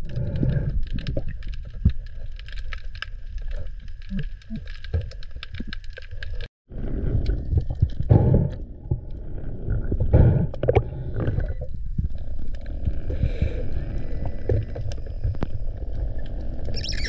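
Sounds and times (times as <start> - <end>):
underwater crackling clicks: 0.0 - 6.5.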